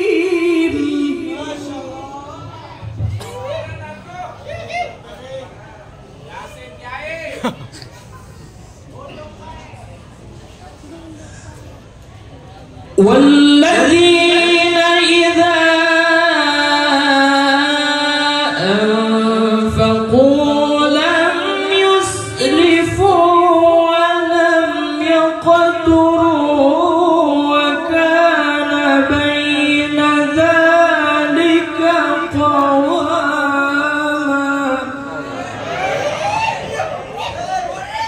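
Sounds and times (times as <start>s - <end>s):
person chanting into a microphone: 0.0s - 3.1s, 13.0s - 35.6s.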